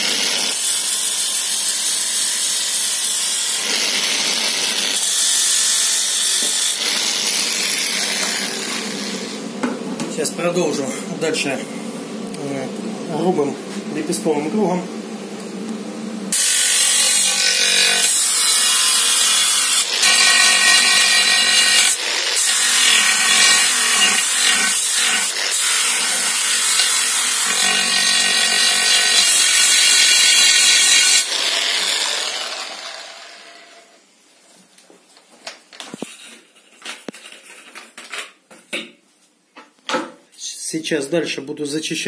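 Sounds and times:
angle grinder grinding metal: 0.0 - 9.6, 16.3 - 34.0.

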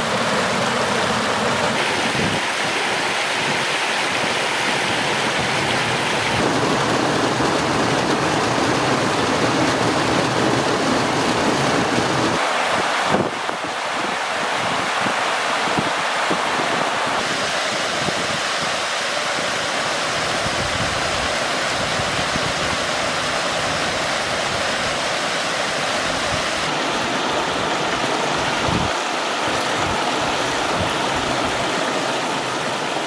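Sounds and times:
waterfall rushing: 0.0 - 33.0.

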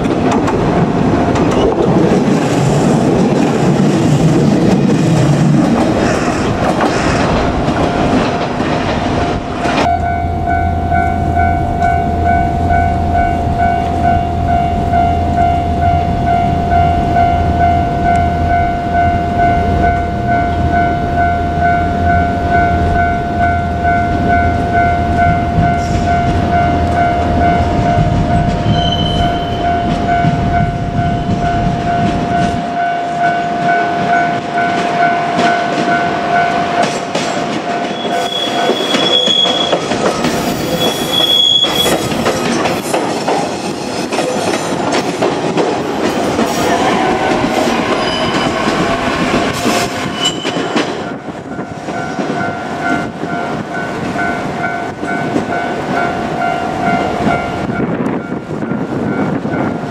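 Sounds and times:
train wheels clattering over joints: 0.0 - 9.9, 36.8 - 54.2
level crossing bell ringing: 9.8 - 39.3
short high wheel squeals: 28.7 - 29.6, 37.9 - 42.0, 50.0 - 50.8.

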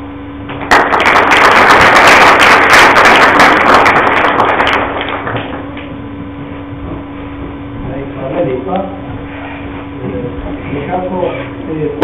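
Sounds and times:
audience applauding: 0.6 - 5.6.

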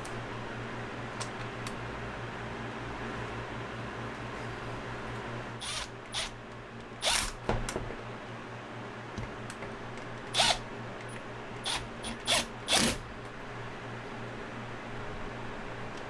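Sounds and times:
steady low hum: 0.0 - 16.0
impact driver bursts: 5.6 - 6.3, 10.4 - 10.6, 11.6 - 13.0.

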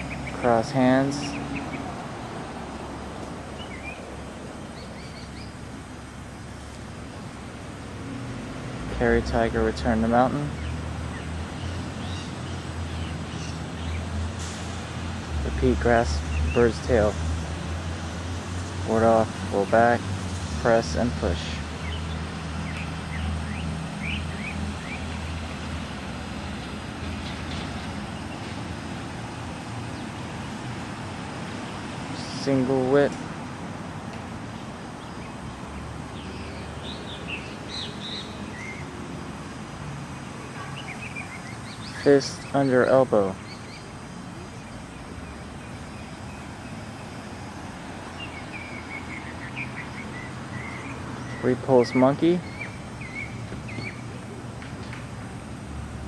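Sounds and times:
low vehicle engine drone: 0.0 - 56.0
road traffic: 0.0 - 56.0
small bird chirping: 3.6 - 4.1, 4.7 - 5.6.

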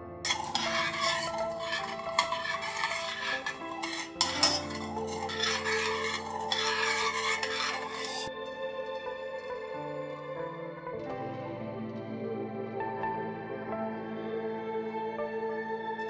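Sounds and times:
metal ladle scraping a saucepan: 0.3 - 8.3
soft background music: 8.3 - 16.0.

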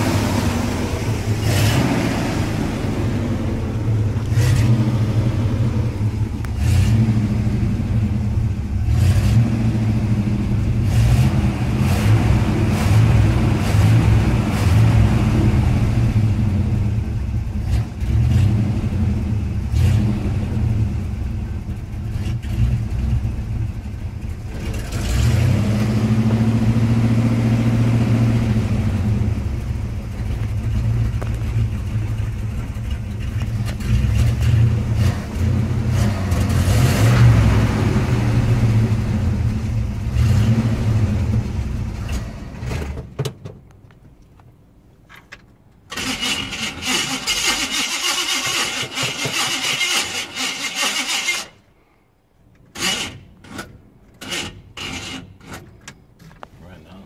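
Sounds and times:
car engine revving: 0.0 - 43.0
starter motor cranking: 45.9 - 51.6.

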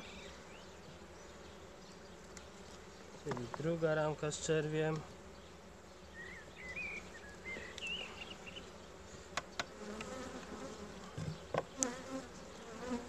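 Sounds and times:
bees buzzing: 0.0 - 13.0
hive frames clicking and knocking: 3.2 - 3.8, 9.3 - 12.1.

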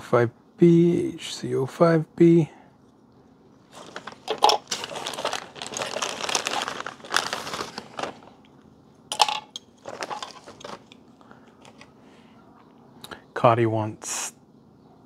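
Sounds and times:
plastic bag crinkling: 3.6 - 8.5, 9.1 - 11.9.

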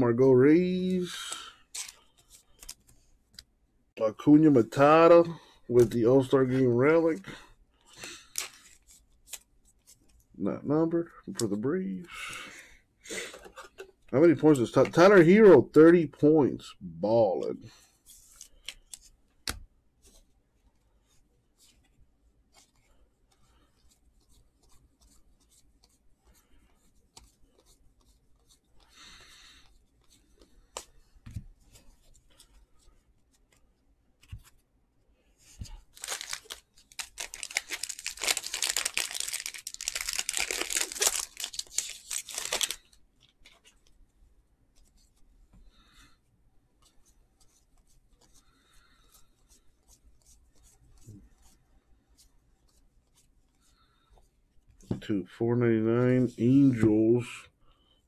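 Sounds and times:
cards being handled clicks: 30.4 - 31.0
wrapper being torn open: 35.9 - 42.9.

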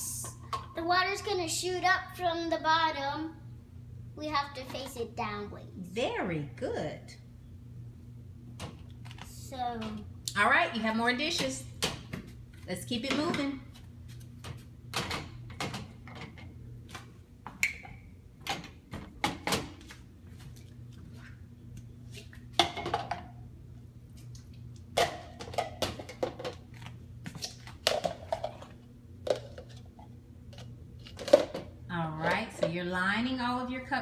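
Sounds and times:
steady low hum: 0.0 - 34.0
plastic cups clattering on rack: 22.6 - 23.3, 25.0 - 26.8, 27.8 - 29.8, 30.6 - 32.8.

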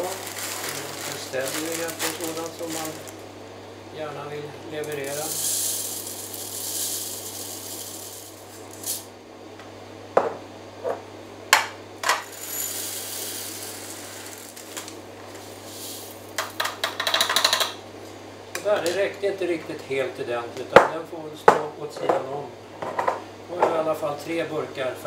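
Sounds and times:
pellets trickling into jar: 0.0 - 3.2, 4.8 - 9.0, 12.2 - 16.5.

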